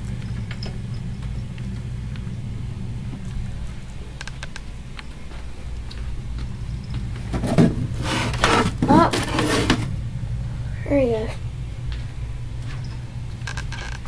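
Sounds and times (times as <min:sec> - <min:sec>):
steady low hum: 0:00.0 - 0:14.0
rustling and knocking: 0:07.0 - 0:09.9.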